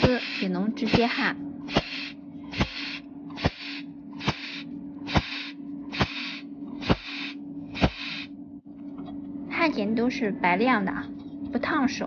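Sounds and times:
welding pulse snaps: 0:00.0 - 0:08.3
steady low hum: 0:00.0 - 0:12.0.

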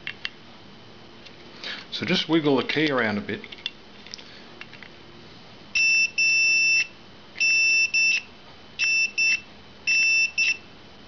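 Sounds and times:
multimeter beeping: 0:05.8 - 0:10.7.

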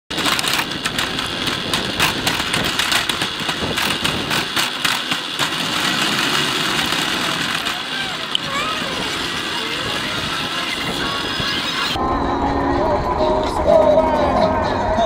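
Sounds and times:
short rattles and knocks: 0:00.1 - 0:08.0
two-stroke kart engine at low revs: 0:00.1 - 0:12.0.

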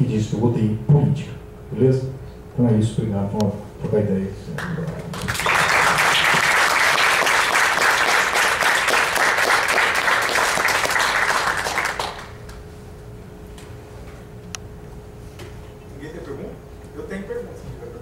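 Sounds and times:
faint steady hum: 0:00.0 - 0:18.0
audience clapping: 0:04.6 - 0:12.6.

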